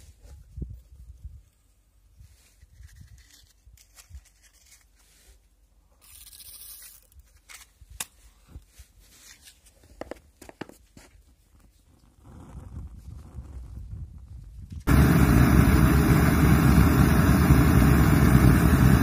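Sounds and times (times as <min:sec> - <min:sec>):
petrol igniting hiss: 0:14.9 - 0:19.0.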